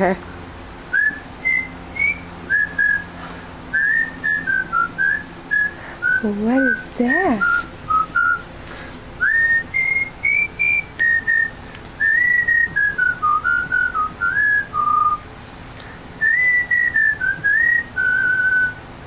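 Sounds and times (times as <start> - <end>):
man whistling a tune: 0.9 - 6.2, 7.4 - 8.5, 9.2 - 15.2, 16.2 - 18.8.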